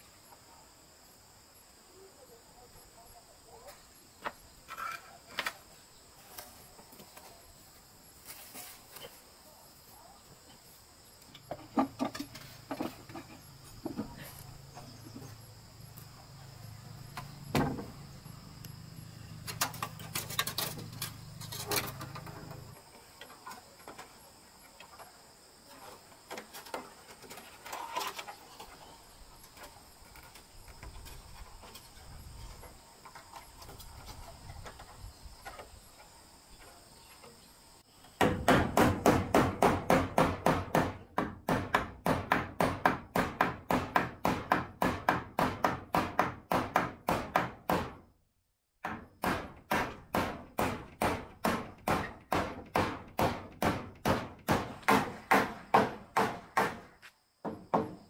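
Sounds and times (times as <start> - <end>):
insect trill: 0.0 - 41.9
wooden boards knocking: 11.5 - 14.2, 17.5 - 18.0, 38.2 - 48.0, 48.8 - 58.0
hammer striking nail into wood: 38.2 - 48.0, 48.8 - 56.9.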